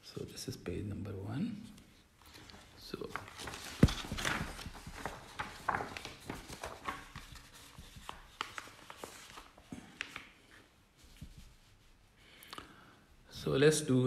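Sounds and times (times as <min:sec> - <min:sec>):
paper rustling: 0:02.2 - 0:12.0.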